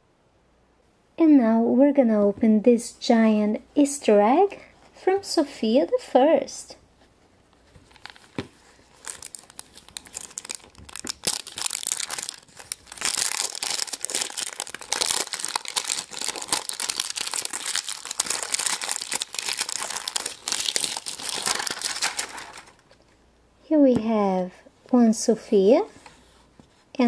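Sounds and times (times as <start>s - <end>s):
plastic wrapping crinkling and tearing: 7.8s - 22.9s.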